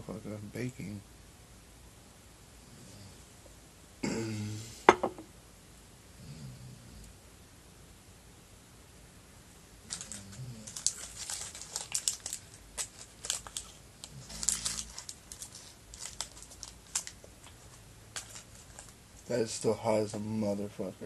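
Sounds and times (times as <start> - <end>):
paper towel crinkling: 9.8 - 19.7.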